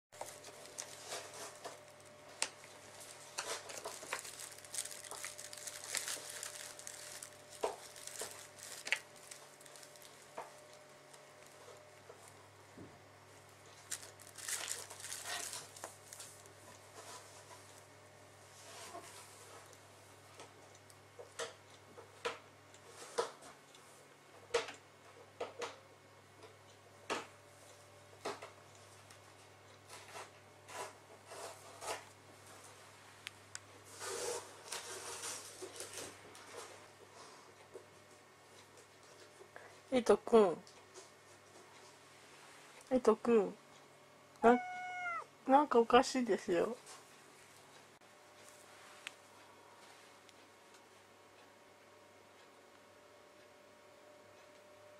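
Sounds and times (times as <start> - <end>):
plastic basket rustling and crinkling: 0.2 - 12.4, 13.7 - 17.8, 33.9 - 36.8.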